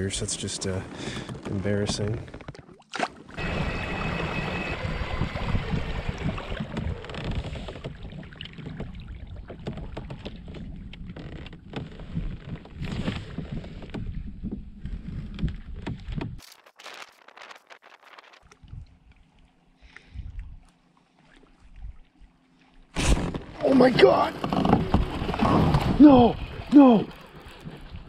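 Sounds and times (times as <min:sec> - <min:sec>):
water rushing along hull: 0:03.0 - 0:11.4, 0:23.6 - 0:28.0.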